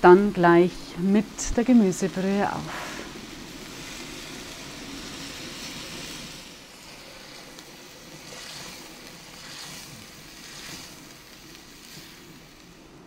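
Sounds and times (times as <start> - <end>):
broth sizzling and sloshing in pot: 0.3 - 13.0
wooden spoon stirring: 7.3 - 12.3.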